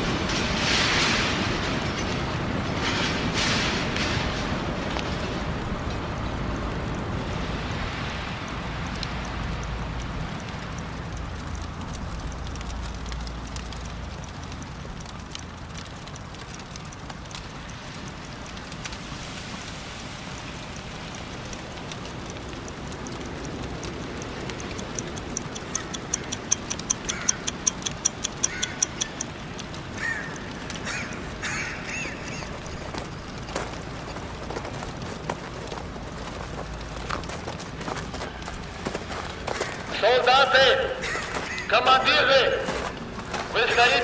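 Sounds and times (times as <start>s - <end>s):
faint crackles: 0.0s - 44.0s
wristwatch ticking: 20.3s - 40.0s.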